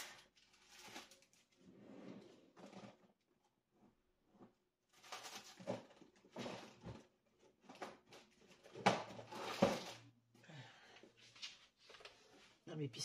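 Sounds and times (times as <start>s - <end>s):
box rustling and clattering: 4.9s - 10.1s.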